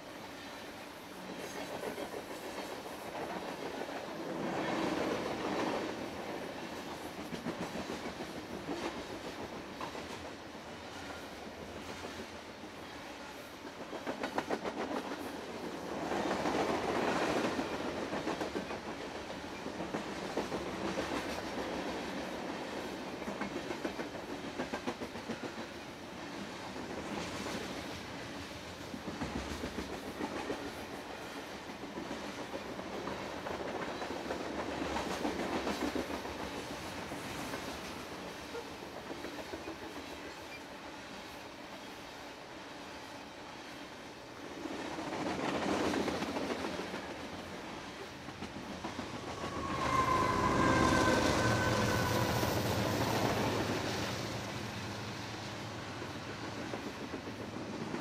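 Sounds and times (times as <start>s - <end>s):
freight train rolling past: 0.0s - 58.0s.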